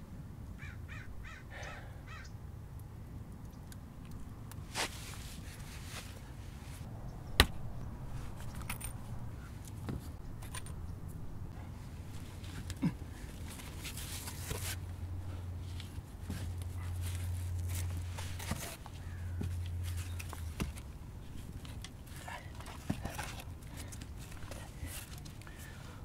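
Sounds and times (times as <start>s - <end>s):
low steady hum: 0.0s - 26.0s
bricks scraping and rustling: 16.2s - 25.3s.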